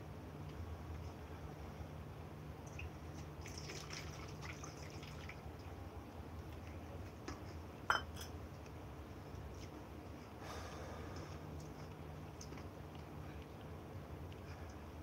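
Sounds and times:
curry pouring and dripping: 2.6 - 5.7.

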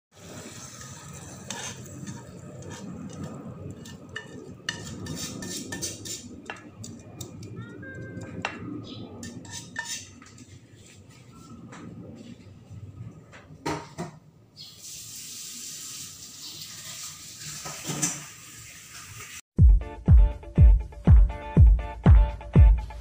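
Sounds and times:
metal spoon scraping ceramic dish: 1.4 - 7.0, 9.2 - 10.5.

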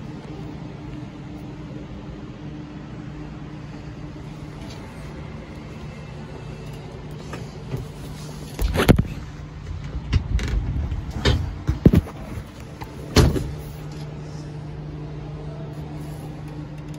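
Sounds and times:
low hum inside car cab: 0.0 - 16.9.

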